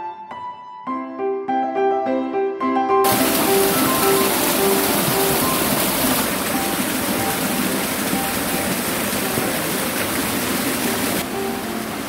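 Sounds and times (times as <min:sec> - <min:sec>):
waterfall splashing over rocks: 0:03.1 - 0:12.0
soft background music: 0:11.2 - 0:12.0.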